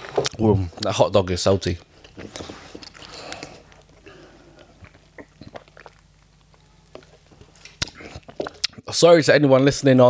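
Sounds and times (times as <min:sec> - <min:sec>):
chewing food: 0:02.0 - 0:08.9
wet mouth clicks and smacks: 0:04.8 - 0:06.6, 0:07.6 - 0:08.8.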